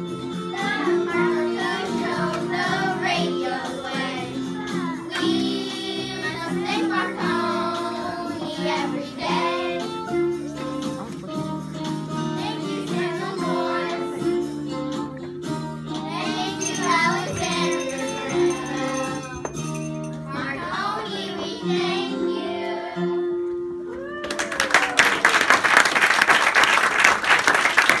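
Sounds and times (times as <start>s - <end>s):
backing music: 0.0s - 23.9s
children singing: 0.5s - 10.6s, 12.3s - 14.5s, 15.9s - 23.2s
audience applause: 24.2s - 28.0s.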